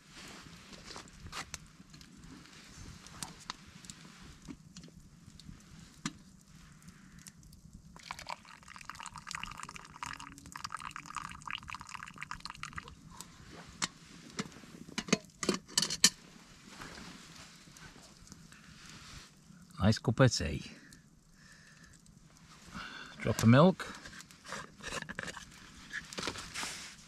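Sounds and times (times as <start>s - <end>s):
water pouring into a mug: 8.0s - 13.1s.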